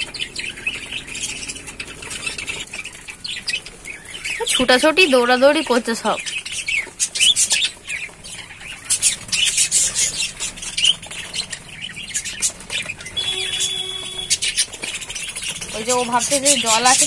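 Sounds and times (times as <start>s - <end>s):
budgerigars chattering: 0.0s - 17.0s.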